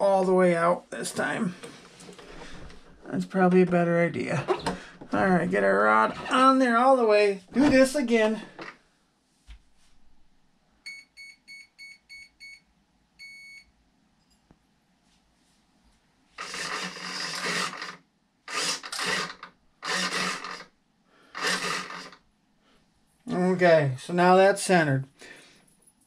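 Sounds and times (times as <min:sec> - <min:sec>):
servo buzzing: 0:16.4 - 0:20.7, 0:21.3 - 0:22.2.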